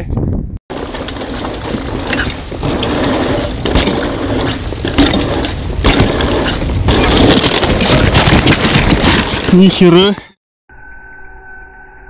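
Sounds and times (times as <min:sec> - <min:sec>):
tyre and wind noise: 0:00.0 - 0:10.3
knocks over bumps: 0:00.7 - 0:09.9
bike rattling: 0:00.7 - 0:10.2.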